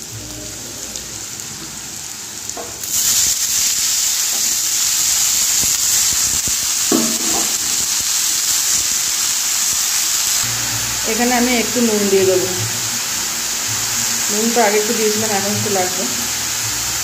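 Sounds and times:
hot oil sizzling: 0.0s - 17.0s
leaves frying in oil: 0.0s - 17.0s.

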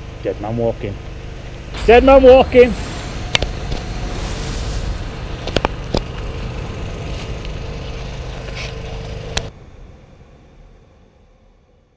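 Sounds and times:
faint hum: 0.0s - 11.9s
low rumbling noise: 1.1s - 11.8s
sharp cracks: 1.8s - 7.8s.

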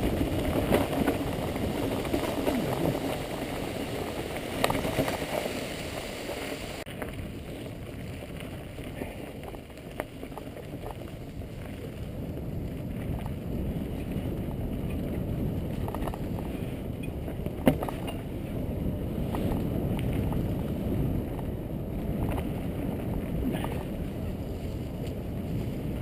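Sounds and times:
bike clicks and knocks: 0.0s - 5.6s, 8.0s - 11.9s, 12.8s - 18.5s, 21.3s - 23.9s
tyres over ground: 0.0s - 26.0s
wind rumble on microphone: 0.0s - 26.0s.

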